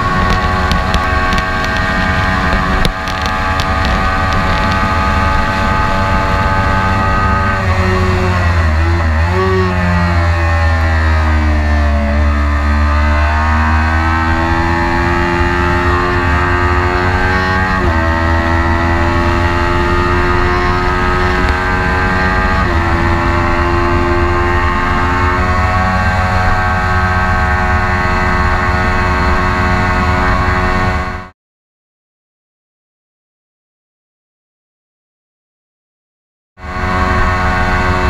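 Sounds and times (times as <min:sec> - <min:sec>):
wind rumble on microphone: 0:00.0 - 0:11.6, 0:12.7 - 0:31.3
motorcycle engine accelerating: 0:00.0 - 0:31.3, 0:36.6 - 0:38.0.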